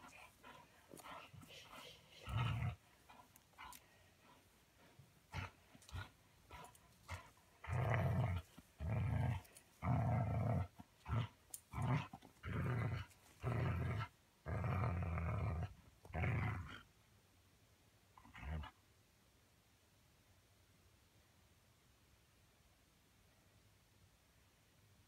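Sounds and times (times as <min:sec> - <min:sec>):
dog growling: 0:00.0 - 0:16.8.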